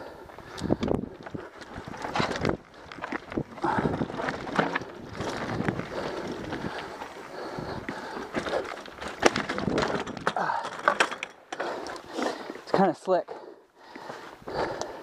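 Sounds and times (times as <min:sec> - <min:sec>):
tyres crunching over stone: 0:00.4 - 0:12.8
bike rattling and knocking: 0:00.4 - 0:13.0
bike crashing on rock: 0:01.6 - 0:07.0, 0:08.1 - 0:11.7.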